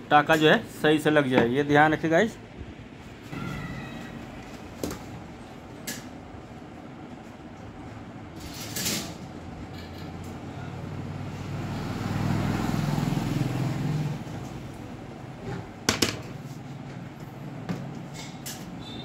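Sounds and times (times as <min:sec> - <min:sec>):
vehicle engine passing by: 0:10.6 - 0:14.7.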